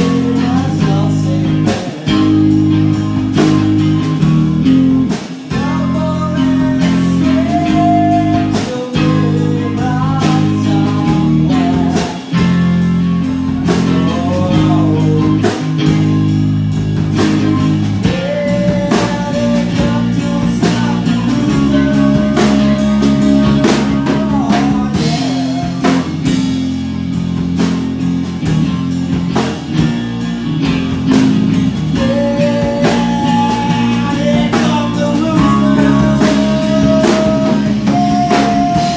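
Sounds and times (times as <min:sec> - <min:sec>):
singer's vocals: 0:00.0 - 0:03.0, 0:05.0 - 0:16.0, 0:17.9 - 0:26.5, 0:31.8 - 0:38.9
drum kit: 0:00.0 - 0:38.9
electric guitar: 0:00.0 - 0:38.9.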